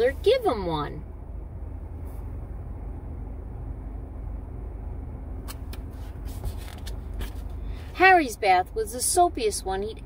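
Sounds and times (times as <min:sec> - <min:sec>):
low rumble inside car cabin: 0:00.0 - 0:10.0
book page turning: 0:05.5 - 0:07.5.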